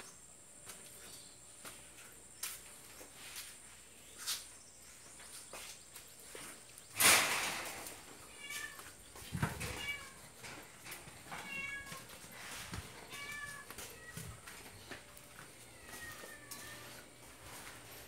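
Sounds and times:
cat meowing: 8.3 - 9.0, 11.4 - 12.1, 13.0 - 14.4, 15.7 - 17.0.

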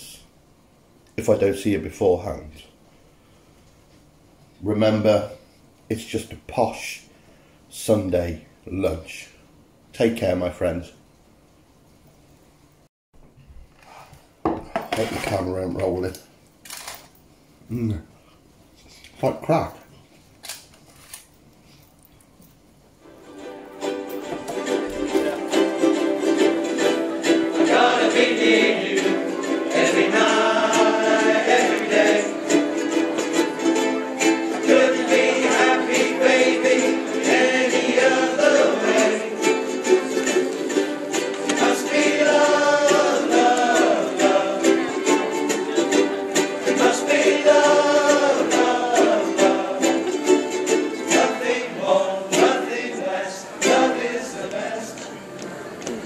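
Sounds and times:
ukulele ensemble strumming: 23.0 - 56.0
group of voices singing: 25.1 - 56.0.

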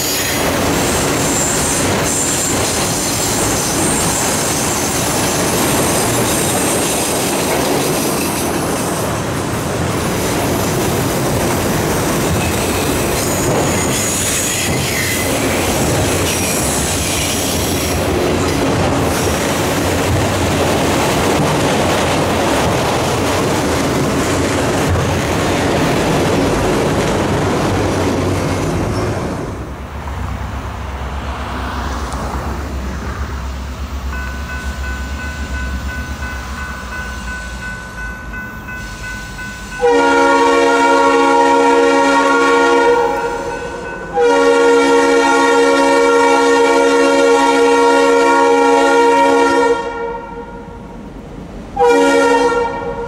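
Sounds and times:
high wheel squeal: 0.0 - 7.1, 12.4 - 15.4
freight train rolling past: 0.0 - 53.0.

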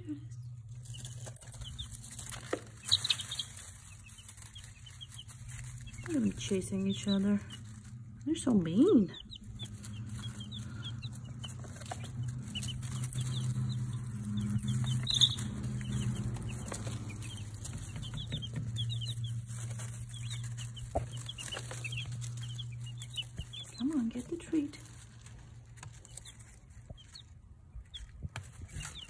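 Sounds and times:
baby chicks peeping: 0.0 - 29.0
steady low hum: 0.0 - 29.0.

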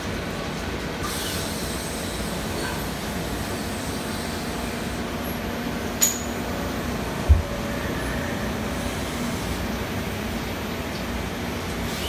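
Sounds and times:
lathe mechanical running noise: 1.0 - 12.0
short low thud: 7.2 - 7.6.

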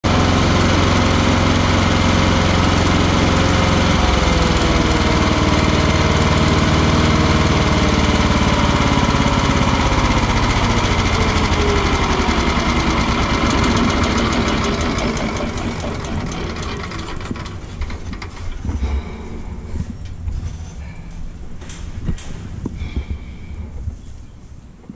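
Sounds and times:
stump grinder engine running: 0.1 - 19.4.

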